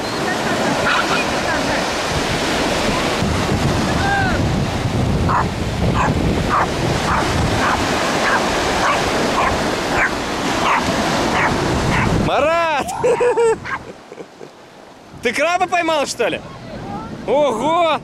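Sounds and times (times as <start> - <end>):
breaking surf: 0.0 - 18.0
small dog yapping: 5.3 - 10.8.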